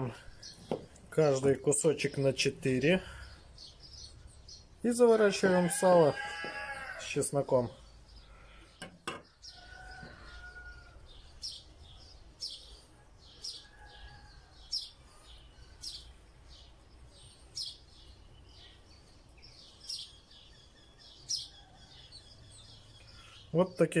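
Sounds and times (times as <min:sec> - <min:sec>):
small bird chirping: 0:00.0 - 0:05.0, 0:07.5 - 0:23.7.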